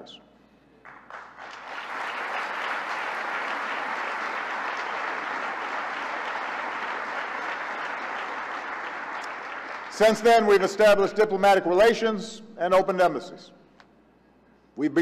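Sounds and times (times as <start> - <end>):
large audience applauding: 0.8 - 10.6.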